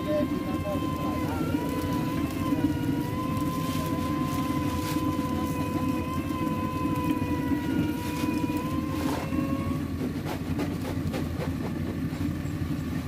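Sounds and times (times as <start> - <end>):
juice press motor whine: 0.0 - 13.0.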